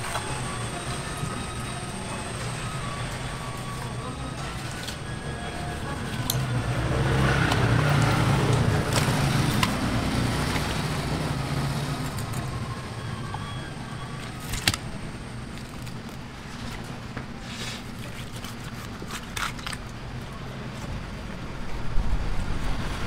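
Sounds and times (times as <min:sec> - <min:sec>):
vehicle passing by: 0:05.2 - 0:13.6.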